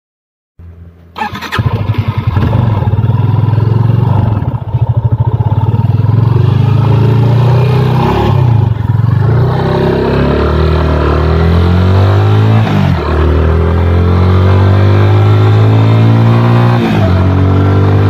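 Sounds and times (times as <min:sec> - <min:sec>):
motorcycle engine accelerating: 0:01.2 - 0:18.0.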